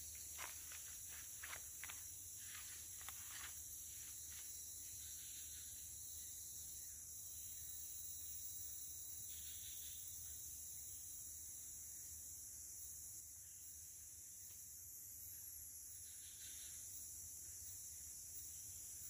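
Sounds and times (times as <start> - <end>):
footsteps crunching on leaves: 0.0 - 4.6
insects droning: 0.0 - 19.0.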